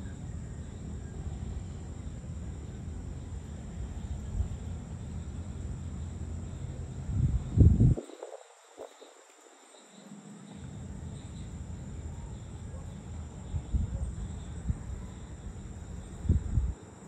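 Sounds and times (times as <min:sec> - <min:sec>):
insect chirring: 0:00.0 - 0:17.0
low rumble: 0:01.2 - 0:08.0.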